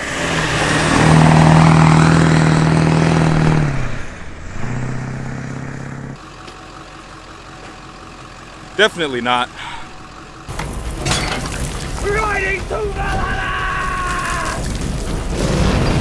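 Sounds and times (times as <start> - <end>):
diesel bus engine driving past: 0.0 - 10.5.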